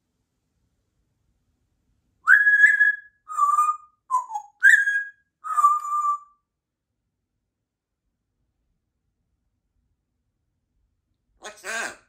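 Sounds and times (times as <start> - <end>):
parrot whistling: 2.2 - 6.4.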